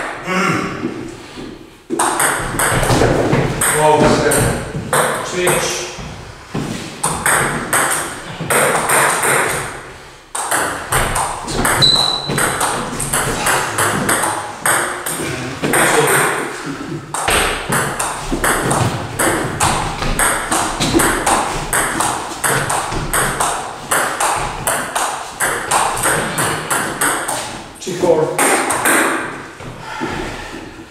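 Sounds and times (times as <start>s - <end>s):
ping pong ball bouncing on table: 1.9s - 5.6s, 7.0s - 9.7s, 10.4s - 16.4s, 17.1s - 27.4s, 28.4s - 29.3s
ping pong ball clicking off bats: 1.9s - 5.6s, 7.0s - 16.5s, 17.1s - 27.5s, 28.4s - 29.4s.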